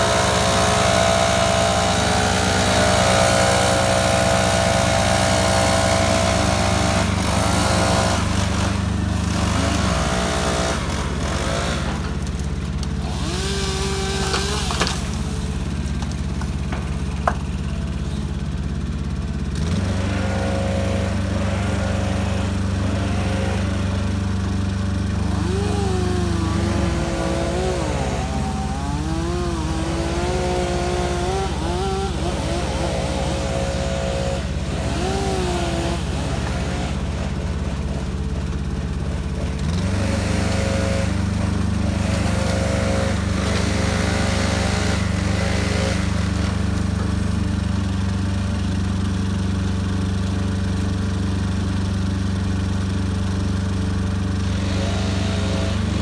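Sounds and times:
hydraulic whine: 0.0 - 38.6
truck engine humming: 8.7 - 39.7.

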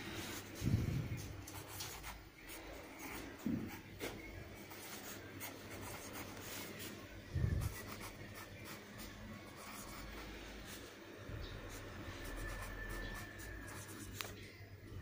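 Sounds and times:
pen scratching on paper: 4.6 - 10.8, 11.7 - 14.3.

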